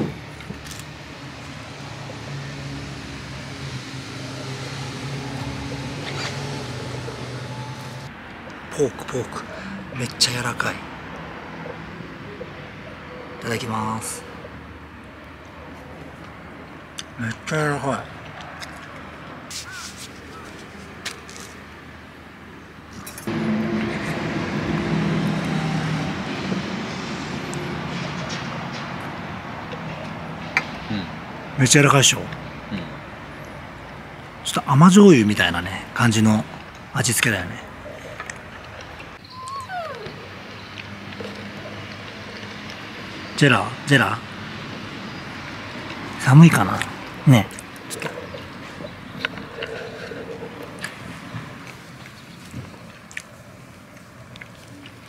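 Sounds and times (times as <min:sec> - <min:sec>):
engine droning: 0:00.0 - 0:19.4, 0:23.0 - 0:55.0
rushing noise: 0:23.3 - 0:29.6.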